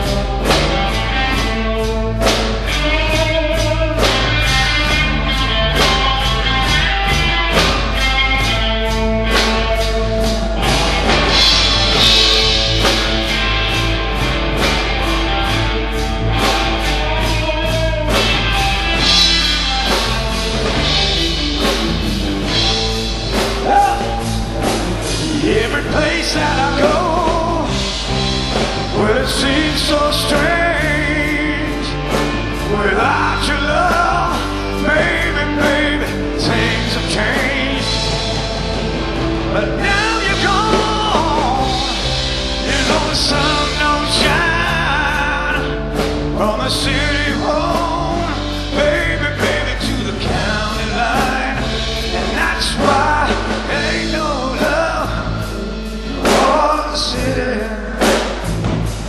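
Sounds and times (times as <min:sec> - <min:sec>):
bass guitar: 0:00.0 - 0:59.0
drum kit beat: 0:00.0 - 0:59.0
electric guitars: 0:00.0 - 0:59.0
man singing: 0:23.3 - 0:38.6, 0:39.4 - 0:58.5.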